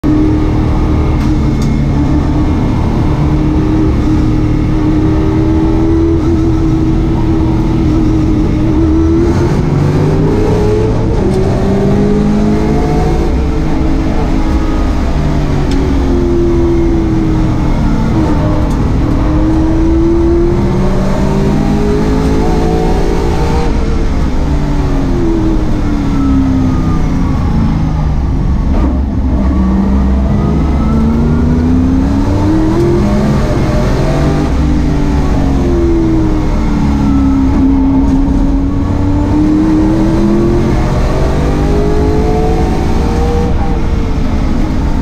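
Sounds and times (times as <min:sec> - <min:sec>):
race car engine at speed: 0:00.0 - 0:45.0.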